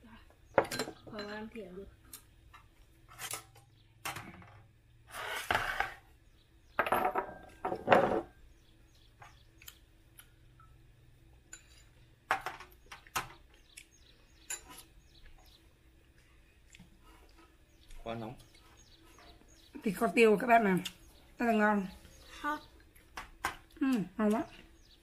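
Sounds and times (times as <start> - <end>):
chopsticks and spoons clinking bowls: 11.4 - 12.0, 14.4 - 14.9.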